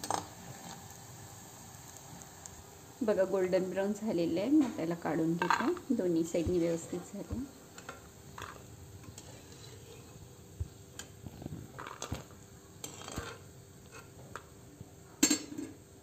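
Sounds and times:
metal skimmer scraping a pan: 7.8s - 10.3s, 11.2s - 14.2s.

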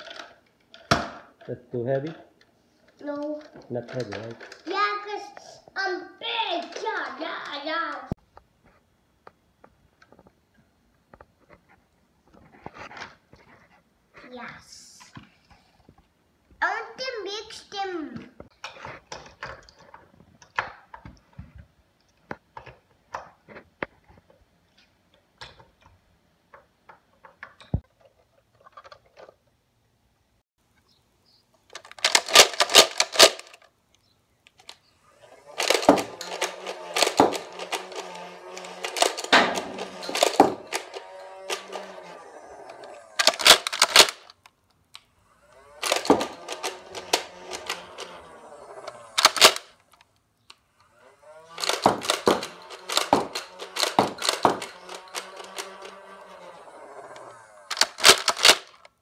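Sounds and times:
toy blaster plastic clicks: 6.6s - 8.1s, 31.7s - 33.7s, 34.6s - 50.1s, 50.8s - 58.9s.

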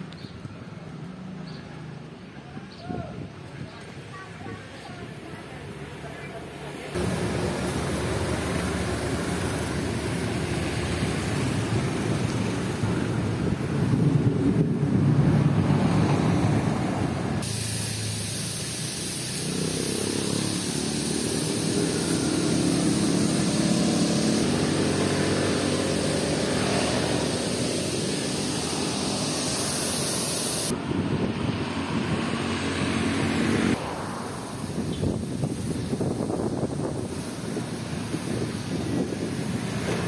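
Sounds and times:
street traffic: 0.0s - 40.0s
vehicle engine hum: 4.1s - 40.0s
wind on microphone: 11.0s - 17.5s, 21.0s - 33.8s, 34.4s - 40.0s.

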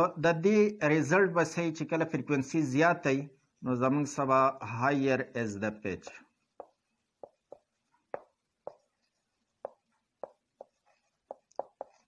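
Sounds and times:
marker pen writing on whiteboard: 6.0s - 12.0s.

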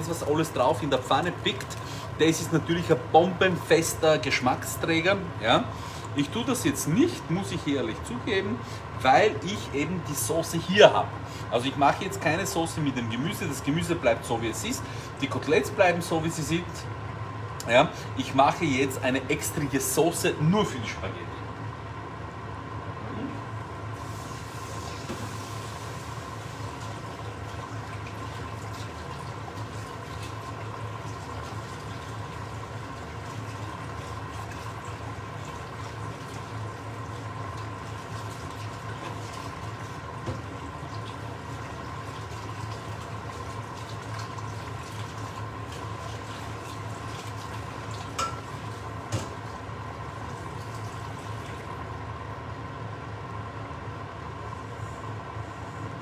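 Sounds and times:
water running: 0.0s - 16.8s, 24.0s - 52.0s
steady hum: 0.0s - 56.0s.

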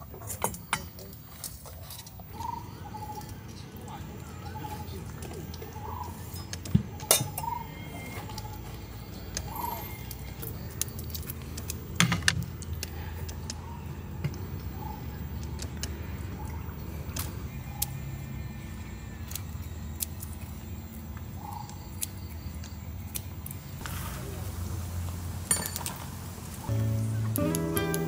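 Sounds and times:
scissors snipping shrimp: 21.5s - 23.7s.

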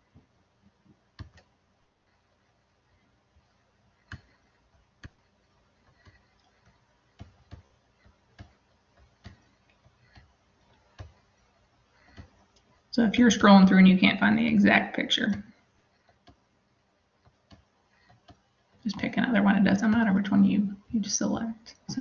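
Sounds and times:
computer mouse clicks: 1.1s - 1.6s, 2.9s - 12.9s, 15.2s - 16.5s, 17.2s - 19.1s.

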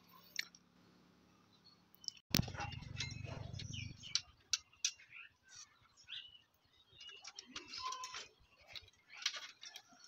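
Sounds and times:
wires and circuit board clicking: 6.5s - 10.0s.

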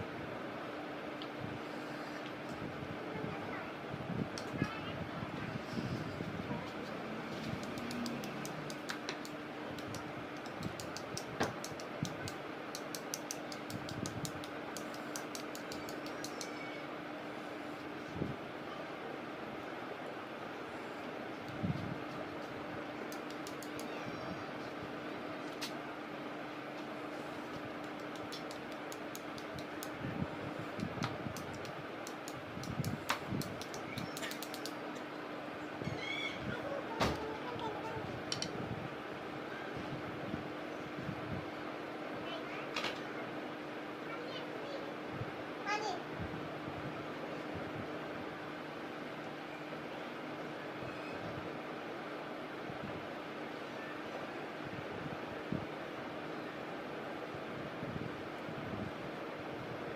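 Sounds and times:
faint steady hum: 0.0s - 59.9s
sharp little clicks: 7.5s - 16.6s, 23.1s - 24.0s, 27.6s - 30.0s, 30.7s - 35.0s.

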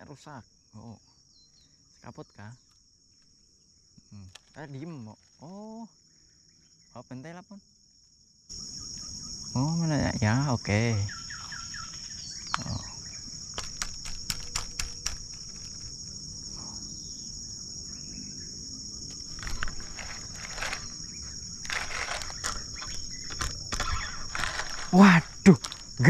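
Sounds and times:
insects chorus: 0.0s - 26.0s
rod rustling: 13.4s - 16.2s, 19.1s - 26.0s.

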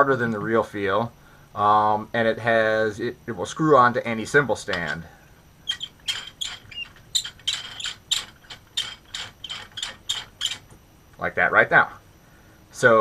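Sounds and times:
small ticks and clicks of screwing: 5.7s - 10.8s.

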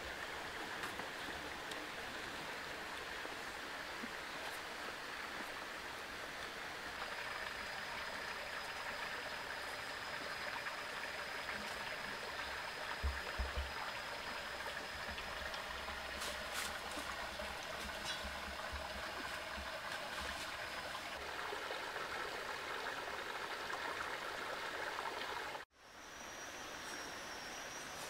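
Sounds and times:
stream water running over rocks: 0.0s - 25.7s
thin high whine: 25.8s - 28.0s.

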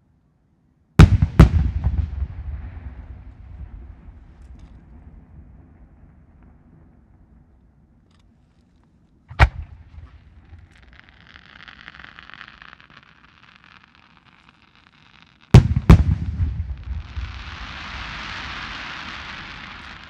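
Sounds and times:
rumbling echo: 1.0s - 7.4s, 9.3s - 10.6s
firework launch bang: 9.3s - 13.0s, 15.5s - 20.0s
loud firework shell bursts: 9.3s - 20.0s
firework shell hissing: 9.4s - 15.6s, 17.0s - 20.0s
steady hiss: 9.4s - 20.0s.

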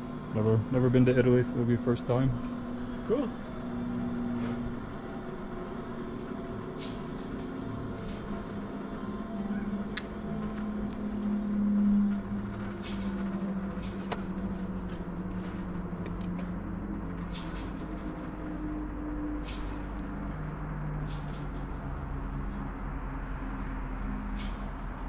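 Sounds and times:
vehicle engine running: 0.0s - 25.0s
light clicks and rattles: 12.1s - 18.5s, 19.4s - 20.1s.

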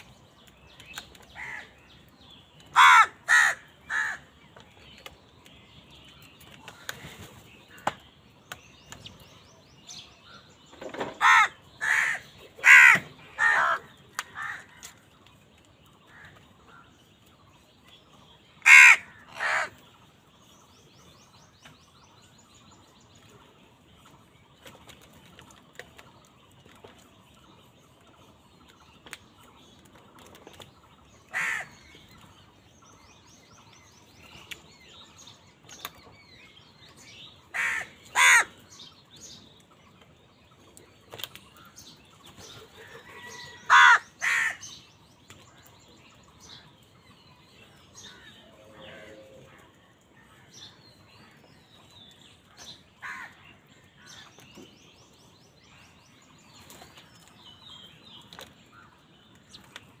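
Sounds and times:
small birds chirping: 0.0s - 60.0s
crows cawing: 1.4s - 1.7s, 2.7s - 4.3s, 11.2s - 15.0s, 18.6s - 19.7s, 31.3s - 31.8s, 37.5s - 38.6s, 43.3s - 44.7s, 53.0s - 53.4s.

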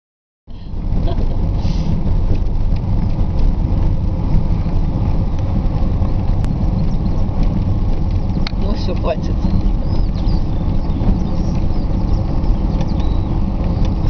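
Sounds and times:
wind and road noise in car: 0.5s - 14.0s.

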